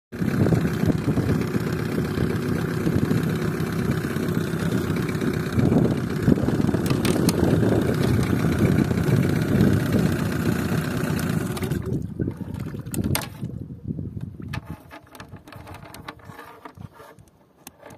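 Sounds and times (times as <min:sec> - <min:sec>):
outboard motor running: 0:00.1 - 0:13.5.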